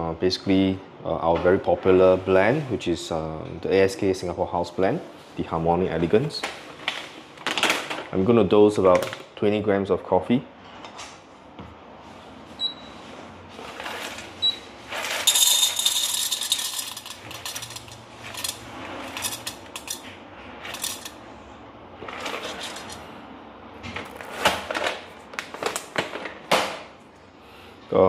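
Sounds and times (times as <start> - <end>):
coffee beans rattling into cup: 14.9 - 21.2.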